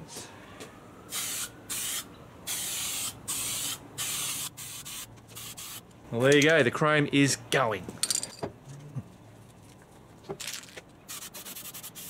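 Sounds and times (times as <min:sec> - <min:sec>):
spray paint can hissing: 0:01.1 - 0:05.8, 0:11.1 - 0:12.0.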